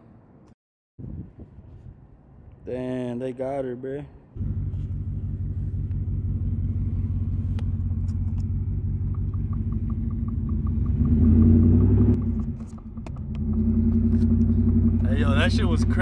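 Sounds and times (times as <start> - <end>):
supercharged truck engine: 4.4 - 16.0
light steady ticking: 7.6 - 11.2.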